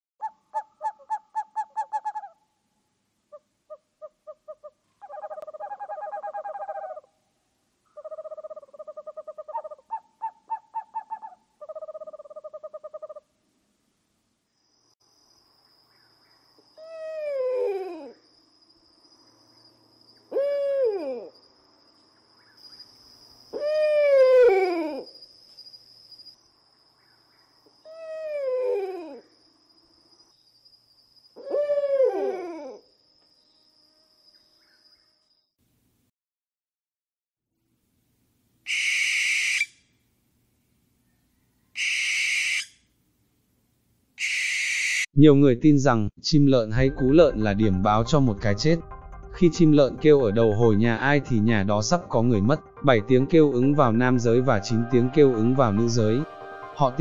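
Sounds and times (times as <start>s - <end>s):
owl hooting: 0.2s - 2.4s, 3.3s - 7.2s, 7.9s - 13.3s, 16.7s - 18.2s, 20.3s - 21.3s, 23.5s - 25.1s, 27.8s - 29.3s, 31.4s - 32.8s, 38.7s - 39.8s, 41.7s - 42.8s, 44.2s - 45.1s.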